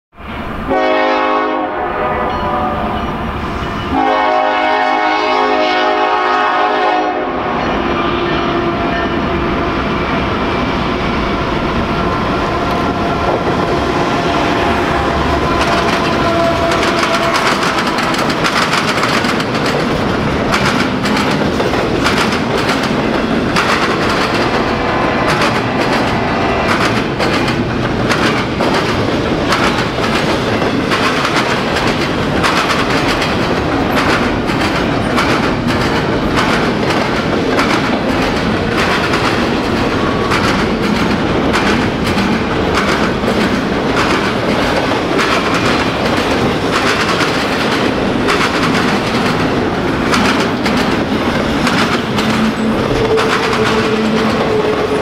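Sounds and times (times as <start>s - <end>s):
diesel locomotive engines: 0.2s - 55.0s
train wheels clicking over rail joints: 12.5s - 55.0s.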